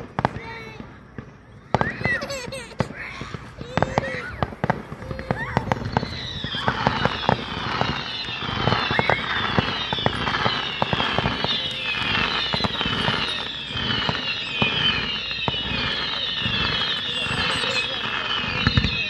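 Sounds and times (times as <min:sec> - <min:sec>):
fireworks crackling: 0:00.0 - 0:19.0
fireworks pops and bangs: 0:00.0 - 0:19.0
whistling shells falling in pitch: 0:03.8 - 0:19.0.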